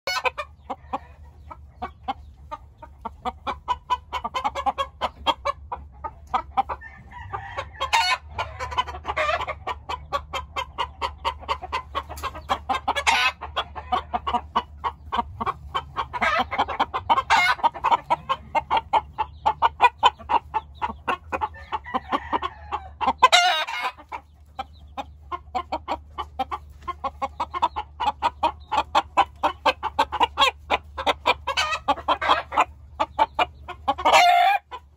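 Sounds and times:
chickens clucking: 0.0s - 34.9s
roosters crowing: 0.1s - 1.4s, 6.6s - 10.2s, 11.0s - 24.3s, 27.8s - 34.8s.

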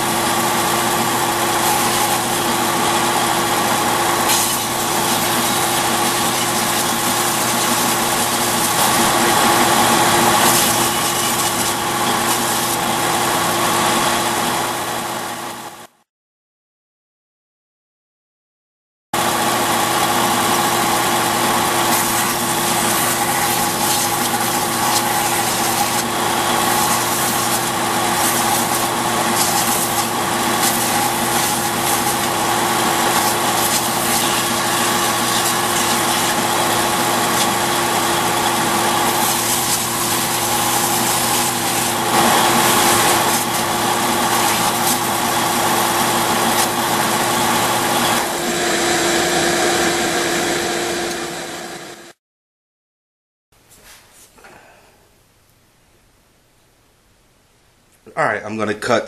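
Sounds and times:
wood grinding against sanding belt: 0.0s - 14.4s, 19.7s - 50.0s
belt sander motor hum: 0.0s - 15.9s, 19.2s - 52.2s.

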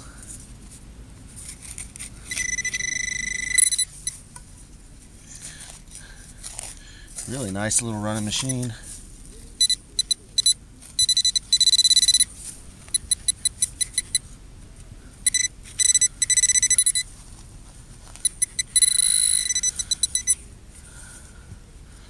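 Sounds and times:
pinpointer beeps and tones: 2.2s - 4.2s, 9.6s - 12.3s, 12.9s - 14.2s, 15.2s - 17.1s, 18.2s - 20.4s.

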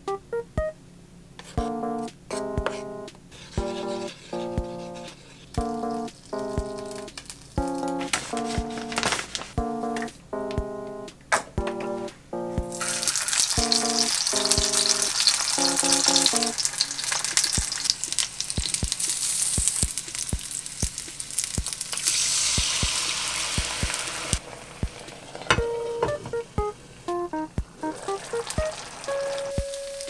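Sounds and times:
dumplings sizzling in oil: 5.6s - 7.6s, 12.8s - 25.7s, 27.9s - 30.0s
water poured into hot pan: 12.8s - 25.6s, 27.9s - 29.6s
oil popping: 12.8s - 26.7s.

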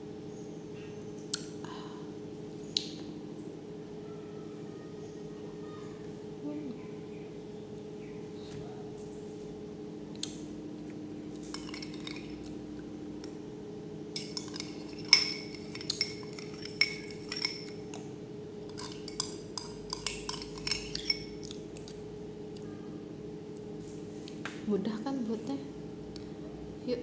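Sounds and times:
metal spoon clinking against glass: 11.4s - 12.4s, 14.2s - 17.9s, 18.7s - 21.4s.

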